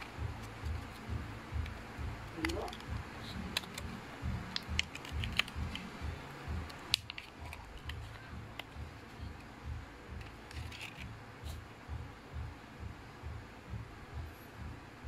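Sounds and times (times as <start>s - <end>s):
plastic packaging crackling: 4.5s - 5.9s, 6.7s - 8.8s, 10.2s - 11.1s.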